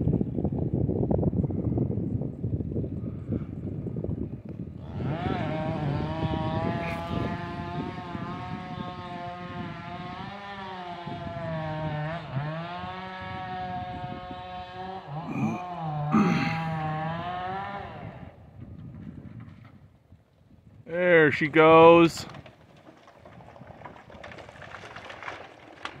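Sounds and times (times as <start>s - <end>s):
chainsaw cutting through tree: 3.1s - 19.5s.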